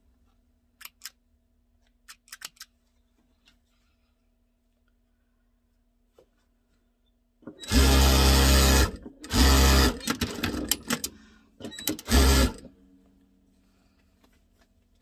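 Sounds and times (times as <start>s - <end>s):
soft irregular sounds: 0.0s - 7.5s
sewing machine stitching: 7.4s - 12.7s.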